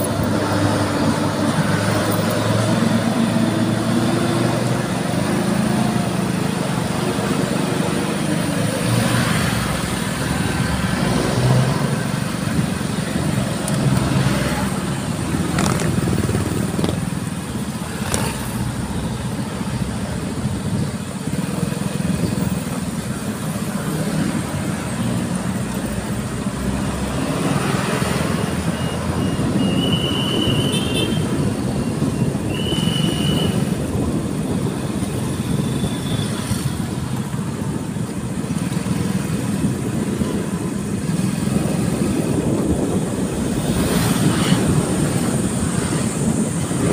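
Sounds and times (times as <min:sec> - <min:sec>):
motorcycle engine running: 0:15.1 - 0:18.6.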